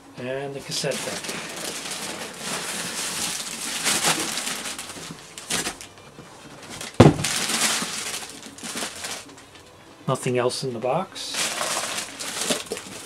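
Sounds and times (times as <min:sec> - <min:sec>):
cardboard box rustling and scraping: 0:00.8 - 0:09.3, 0:11.4 - 0:13.0
heavy thud: 0:07.0 - 0:07.4.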